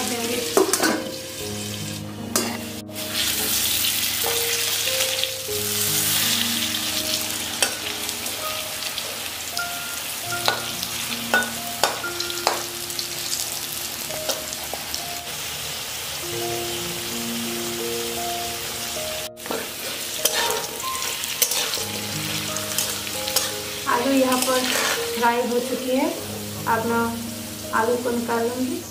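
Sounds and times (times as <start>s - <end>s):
potatoes sizzling in oil: 0.0s - 28.9s
soft background music: 0.0s - 28.9s
spatula scraping pan: 19.4s - 21.9s, 24.3s - 25.2s.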